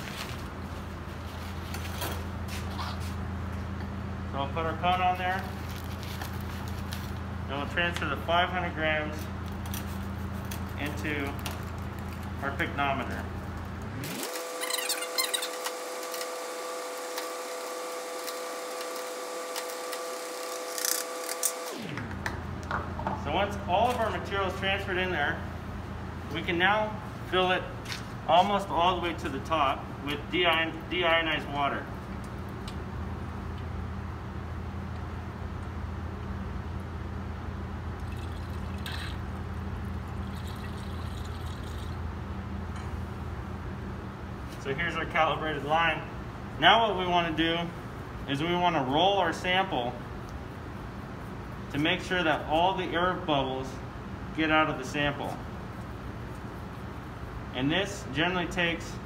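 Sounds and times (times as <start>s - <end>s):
mechanical hum: 0.0s - 59.0s
water running from tap into flask: 38.0s - 39.2s, 40.1s - 42.0s.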